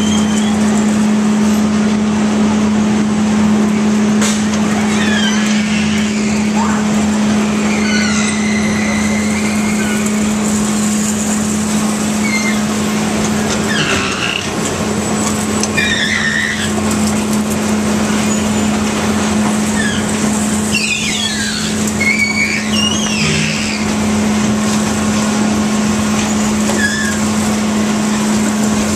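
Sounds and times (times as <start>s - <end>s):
carnival ride machinery humming: 0.0s - 28.9s
high-pitched voices calling out: 4.6s - 10.4s, 20.7s - 24.1s.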